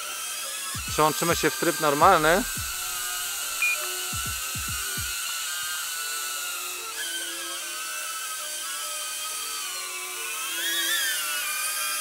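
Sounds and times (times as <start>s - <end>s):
drone propellers whining: 0.8s - 6.8s.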